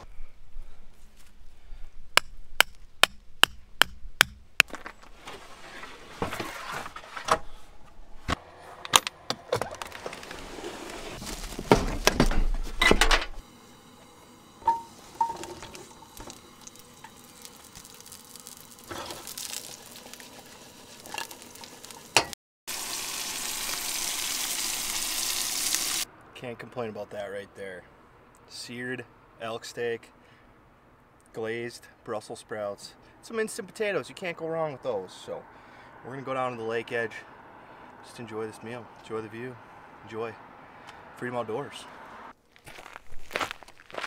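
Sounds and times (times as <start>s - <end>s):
rock knocking metal stake: 2.2s - 4.9s
food sizzling in pan: 15.8s - 26.1s.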